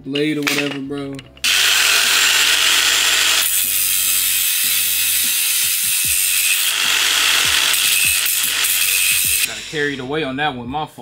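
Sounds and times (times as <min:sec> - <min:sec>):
angle grinder cutting metal: 0:01.4 - 0:10.1.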